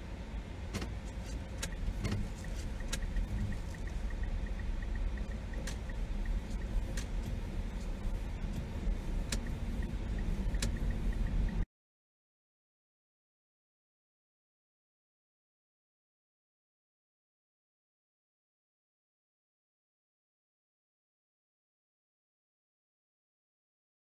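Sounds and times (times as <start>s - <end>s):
car engine and road noise: 0.0s - 11.7s
light regular ticking: 0.8s - 11.6s
sharp clicks: 9.2s - 11.4s.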